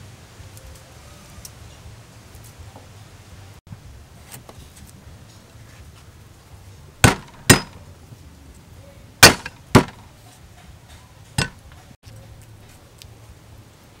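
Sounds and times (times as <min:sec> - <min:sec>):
cleaver whacking on wooden block: 0:07.0 - 0:07.8, 0:09.2 - 0:10.1, 0:11.4 - 0:11.7.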